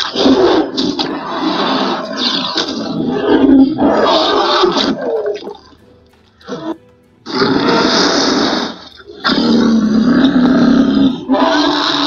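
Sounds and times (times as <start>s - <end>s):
background music: 0.0s - 12.0s
creature roaring: 9.3s - 12.0s.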